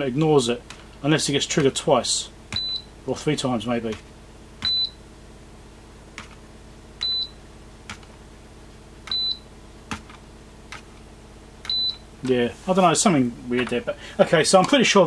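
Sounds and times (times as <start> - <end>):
low steady hum: 0.0 - 15.0
timing system beeps: 2.5 - 2.9, 4.6 - 5.0, 7.0 - 7.4, 9.1 - 9.5, 11.6 - 12.0.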